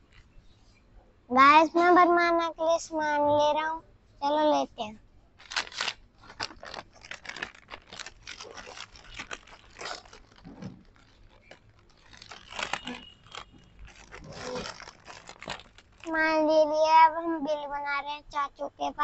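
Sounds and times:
plastic chip packets crinkling: 5.4 - 16.3.

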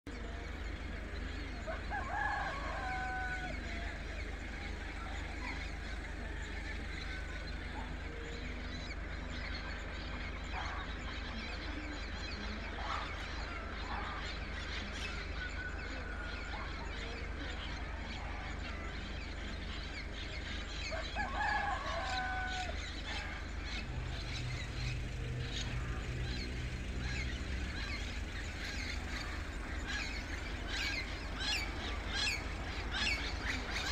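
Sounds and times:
birds chirping: 0.0 - 33.9
distant city rumble: 0.1 - 33.9
rooster crowing: 1.4 - 7.4, 20.8 - 33.9.

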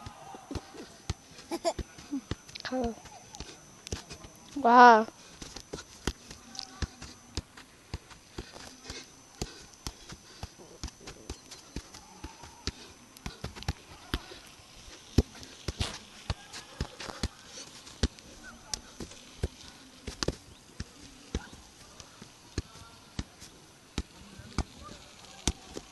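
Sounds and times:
football thudding on feet: 5.4 - 14.3.

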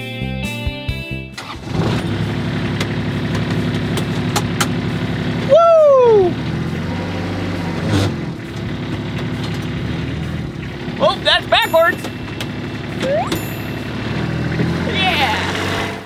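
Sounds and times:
engine starting and idling: 1.3 - 5.5
downward sliding tone: 12.9 - 15.6.

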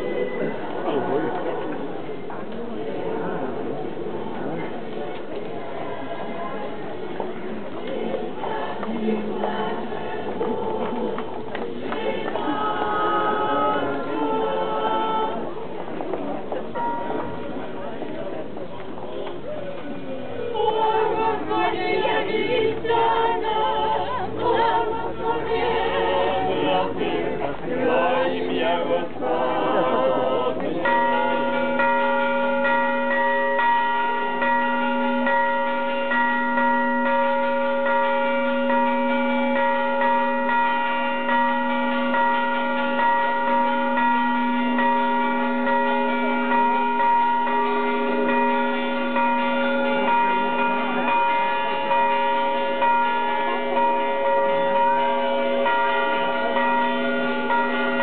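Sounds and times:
unaccompanied choral chant: 0.0 - 16.4, 20.1 - 32.3
church bells ringing: 7.4 - 15.5, 16.6 - 18.0, 20.5 - 58.0.

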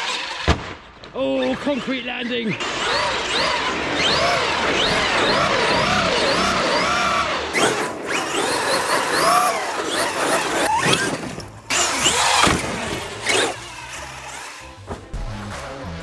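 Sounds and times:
electric motor whining: 2.6 - 14.8.

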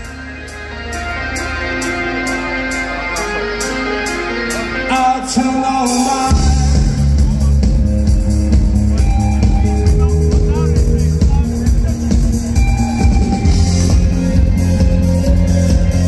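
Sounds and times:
rock band playing: 0.0 - 16.0
bass and kick drum: 6.3 - 16.0.

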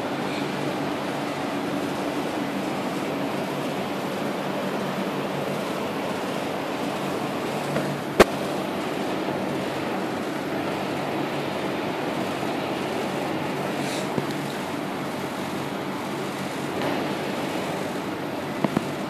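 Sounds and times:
city background hum: 0.0 - 19.0
sharp click: 7.7 - 8.4.

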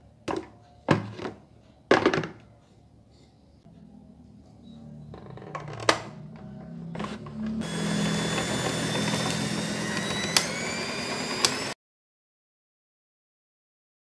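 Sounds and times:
stand mixer motor whining: 6.9 - 11.8.

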